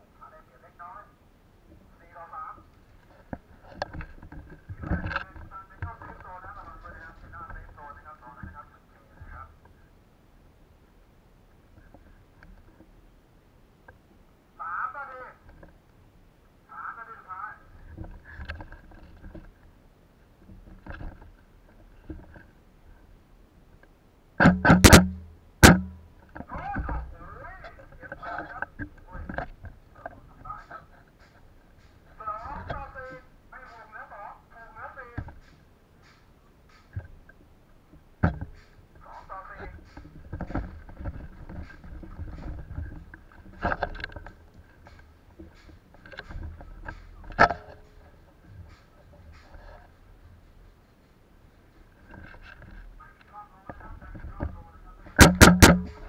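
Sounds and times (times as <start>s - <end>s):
airsoft rifle shots: 24.4s - 26.0s, 55.2s - 56.0s.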